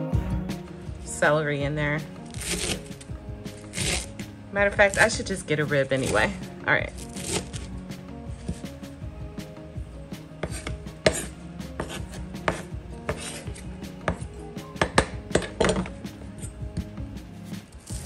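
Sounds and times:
knife chopping on cutting board: 0:02.3 - 0:03.0, 0:03.6 - 0:04.1, 0:07.0 - 0:07.7, 0:08.4 - 0:08.8, 0:10.4 - 0:16.9.

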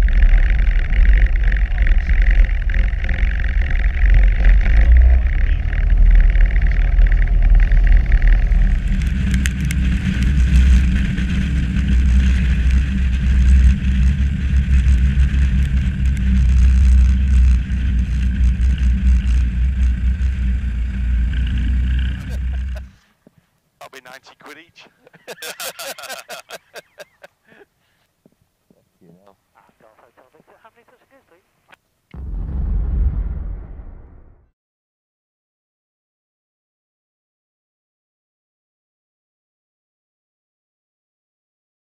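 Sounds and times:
aircraft piston engine running: 0:05.3 - 0:23.0.

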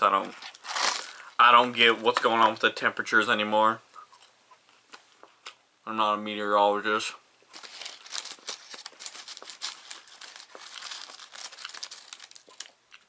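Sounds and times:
paper packaging crinkling: 0:00.2 - 0:01.7, 0:07.5 - 0:13.0.

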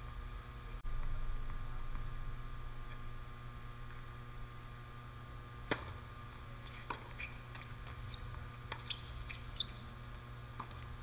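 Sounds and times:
steady low hum: 0:00.0 - 0:11.0
tennis ball bouncing: 0:05.6 - 0:06.0, 0:06.7 - 0:09.7
tennis ball struck with racket: 0:05.6 - 0:06.0.

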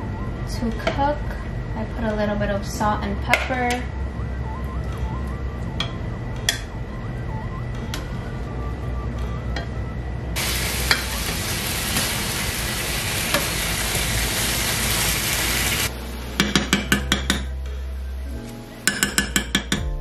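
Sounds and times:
chicken sizzling in oil: 0:10.4 - 0:16.4.

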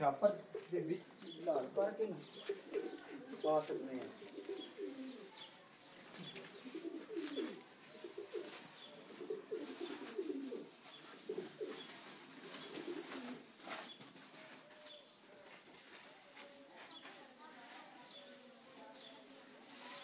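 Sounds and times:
pigeons cooing: 0:00.4 - 0:05.5, 0:06.1 - 0:13.6.

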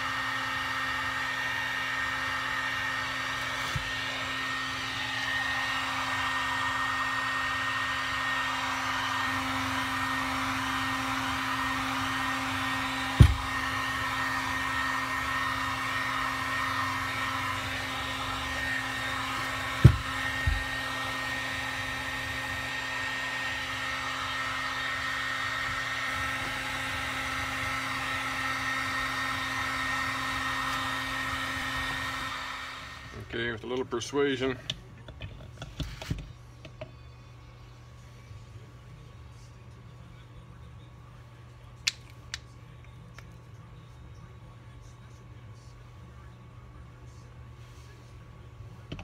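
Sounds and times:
heat gun blowing: 0:00.0 - 0:33.4.

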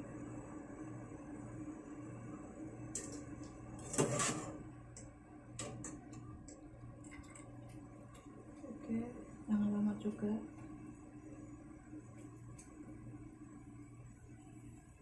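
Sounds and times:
strainer scraping metal pot: 0:03.8 - 0:04.6.

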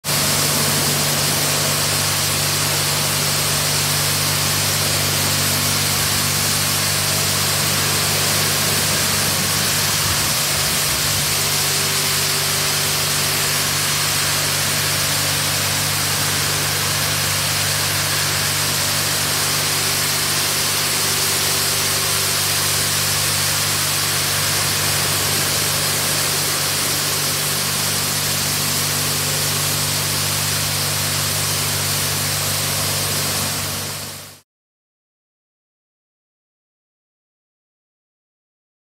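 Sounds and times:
high-pressure water jets hissing: 0:00.1 - 0:34.4
low machine hum: 0:00.1 - 0:34.4.

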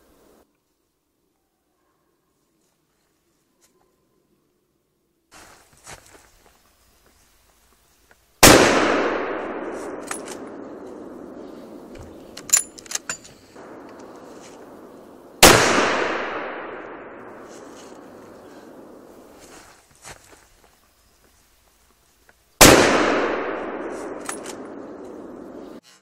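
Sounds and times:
rifle shots with echo: 0:08.4 - 0:12.7, 0:13.6 - 0:19.3, 0:22.6 - 0:25.8
rifle action metallic clicks: 0:09.9 - 0:10.6, 0:11.9 - 0:14.2, 0:24.0 - 0:25.3.

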